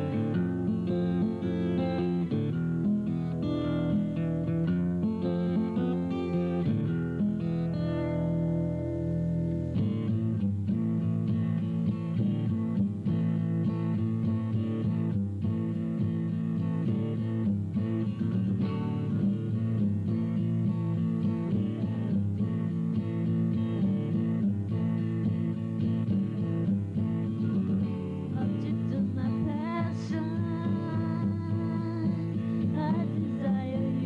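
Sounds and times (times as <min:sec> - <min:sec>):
person singing: 0:28.2 - 0:34.0.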